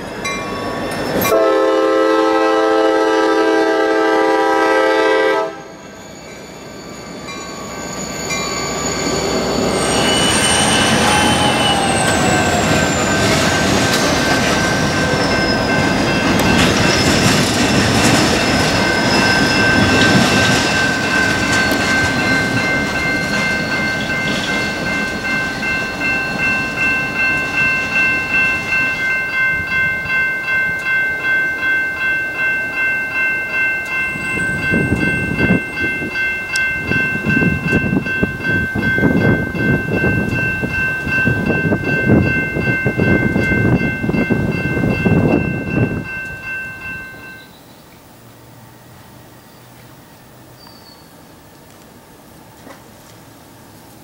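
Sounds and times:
train wheel squeal: 0:00.0 - 0:01.6, 0:05.6 - 0:29.2, 0:48.8 - 0:51.2
crossing signal bell ringing: 0:00.0 - 0:47.8
freight train rumbling: 0:00.0 - 0:54.0.

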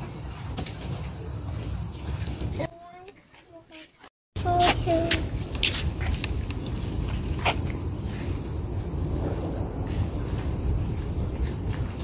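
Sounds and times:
forest insects droning: 0:00.0 - 0:03.1, 0:04.4 - 0:12.0
low rumble: 0:05.3 - 0:12.0.

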